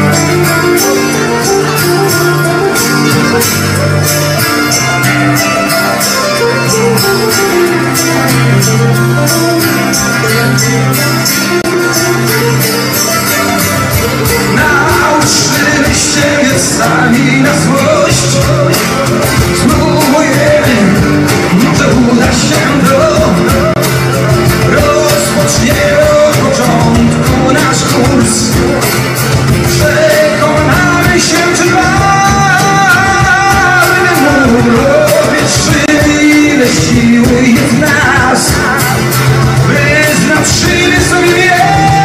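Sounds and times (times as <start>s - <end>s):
strummed acoustic guitars: 0.0s - 42.0s
hand percussion beat: 0.1s - 42.0s
man singing into microphone: 14.2s - 42.0s.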